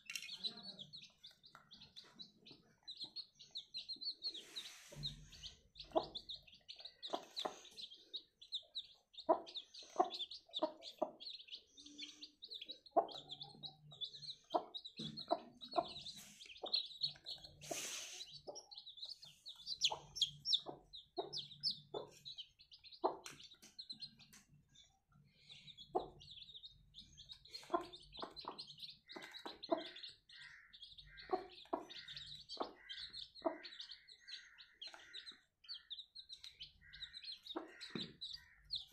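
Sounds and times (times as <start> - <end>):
chicks peeping: 0.0 - 38.9
hen clucking: 2.0 - 24.4, 27.2 - 38.9.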